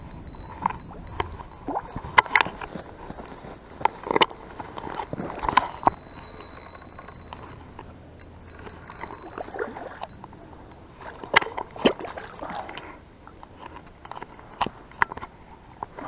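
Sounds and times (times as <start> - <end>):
fish splashing in water: 11.0 - 12.9.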